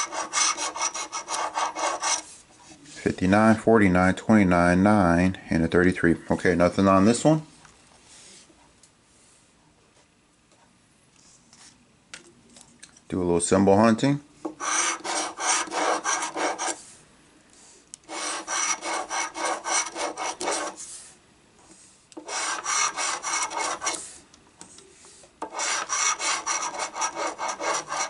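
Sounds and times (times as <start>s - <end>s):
coin scraping scratch card: 0.0s - 2.2s, 14.6s - 16.8s, 18.1s - 20.8s, 22.2s - 24.1s, 25.4s - 28.0s.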